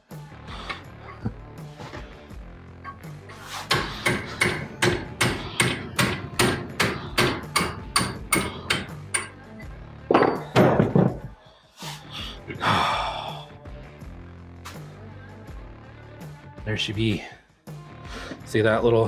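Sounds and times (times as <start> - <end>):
sledge hammer striking metal: 3.6 - 9.4
heavier knocks: 10.1 - 11.4.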